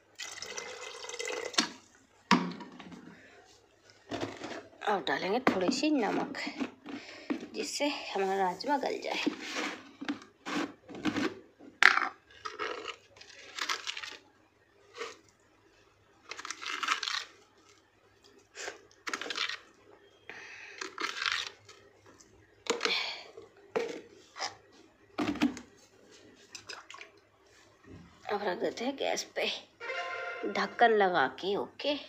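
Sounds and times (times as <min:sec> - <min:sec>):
rustling and scraping: 0:02.8 - 0:04.8, 0:05.7 - 0:11.8.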